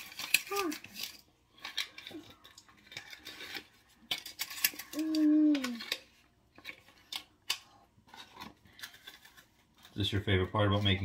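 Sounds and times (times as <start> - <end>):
paper liners crinkling: 0.0 - 11.0
child humming: 4.9 - 6.0.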